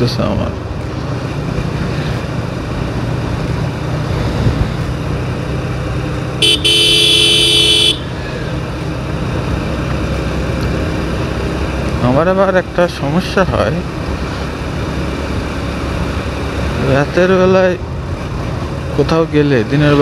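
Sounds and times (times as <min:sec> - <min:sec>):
motorcycle engine rumble: 0:00.0 - 0:20.0
horn honking: 0:06.4 - 0:08.2.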